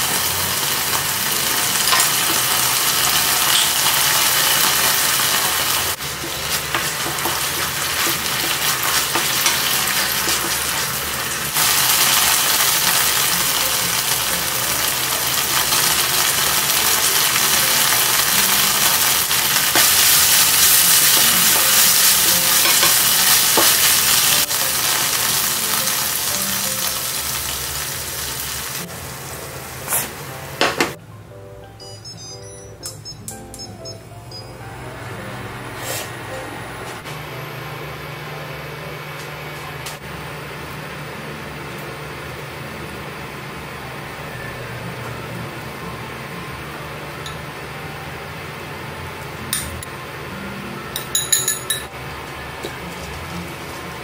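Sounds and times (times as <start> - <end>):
meat sizzling in a frying pan: 0.0 - 30.1.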